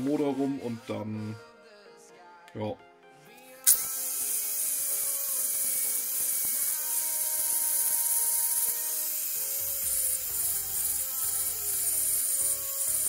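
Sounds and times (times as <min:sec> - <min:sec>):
angle grinder grinding metal: 0:03.6 - 0:13.0.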